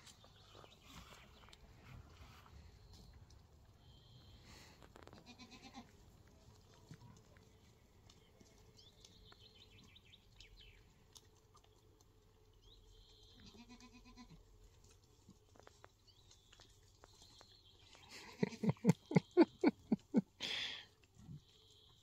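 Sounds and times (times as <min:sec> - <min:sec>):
lambs bleating faintly: 0:05.2 - 0:05.9, 0:13.4 - 0:14.4.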